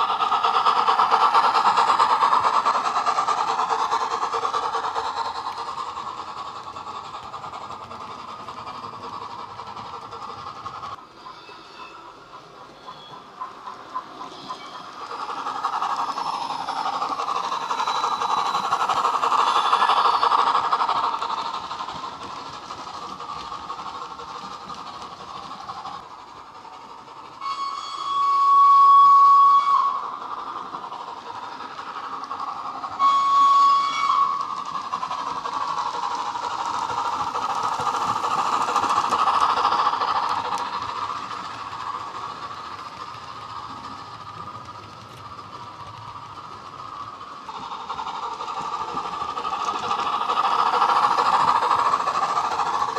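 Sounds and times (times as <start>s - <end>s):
steam locomotive running sounds: 0.0s - 52.9s
train whistle blasts: 27.4s - 30.1s, 33.0s - 34.5s.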